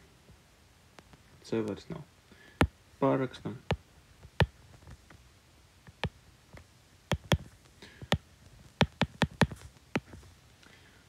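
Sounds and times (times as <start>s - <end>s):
sharp clicks: 7.1s - 8.2s, 8.8s - 10.1s.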